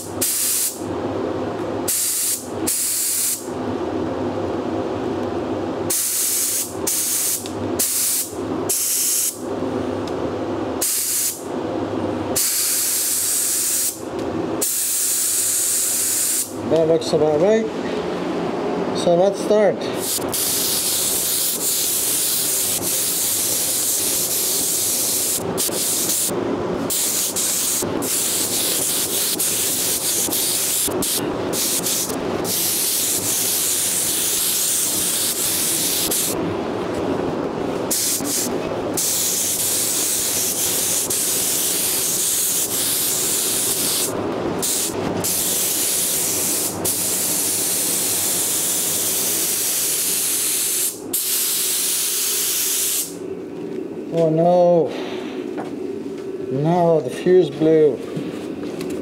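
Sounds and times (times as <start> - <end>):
steady low hum: 0.0 - 59.0
spray gun hissing: 10.8 - 11.4, 14.6 - 16.5, 20.0 - 26.3, 26.9 - 36.4, 37.9 - 53.2.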